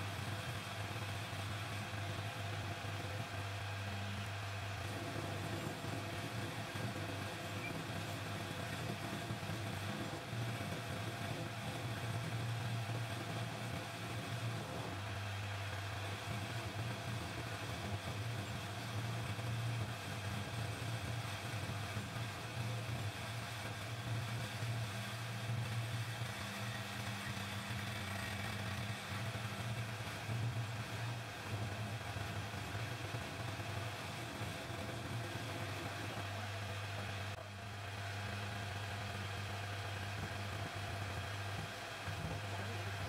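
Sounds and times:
metal lathe motor hum: 22.2s - 37.4s.

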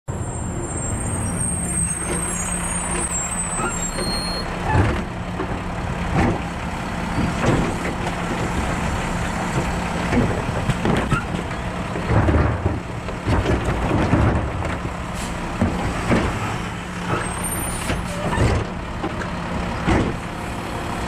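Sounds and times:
diesel truck engine running: 0.1s - 21.0s
knocks and clanks: 4.6s - 6.5s, 7.2s - 8.8s, 9.5s - 20.2s.

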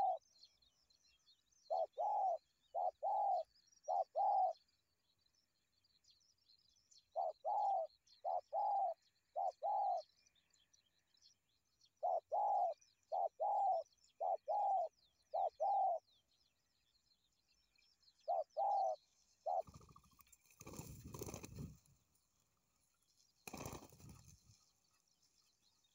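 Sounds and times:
dove cooing: 0.0s - 0.2s, 1.7s - 4.6s, 7.2s - 10.0s, 12.0s - 16.0s, 18.3s - 20.0s
small birds chirping: 0.0s - 25.9s
wings fluttering: 19.6s - 22.2s, 23.4s - 25.0s.

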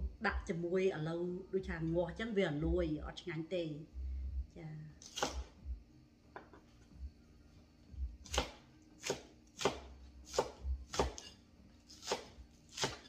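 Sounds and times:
cleaver chopping on wooden board: 5.1s - 5.5s, 8.2s - 11.3s, 11.9s - 13.0s.

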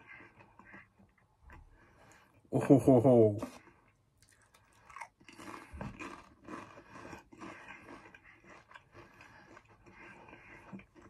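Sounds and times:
crunching and chewing crisps: 3.5s - 11.0s.

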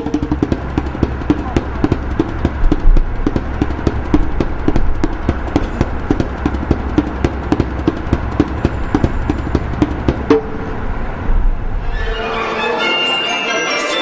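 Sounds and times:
fast clatter of hollow knocks: 0.0s - 10.8s.

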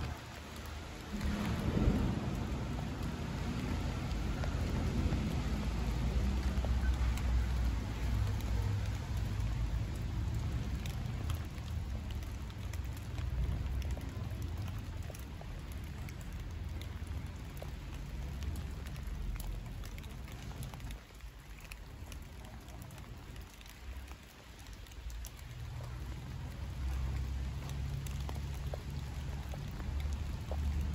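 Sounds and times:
low rumble: 0.0s - 20.8s
light rain: 0.0s - 30.9s
raindrops ticking: 0.0s - 30.9s.

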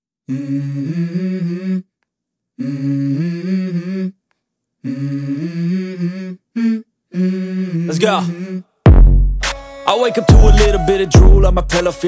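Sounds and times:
wordless vocal: 0.3s - 1.9s, 2.6s - 4.2s, 4.8s - 8.8s, 9.8s - 12.0s.

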